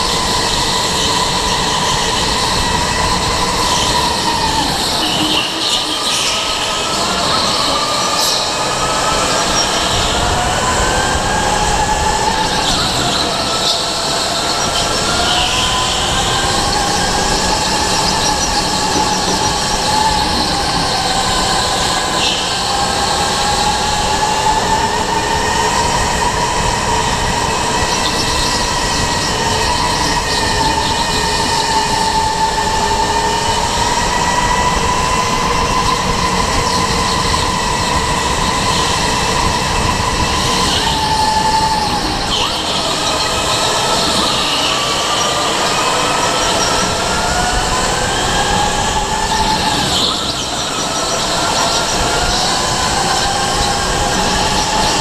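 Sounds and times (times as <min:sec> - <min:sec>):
track noise rushing: 0:00.0 - 0:55.0.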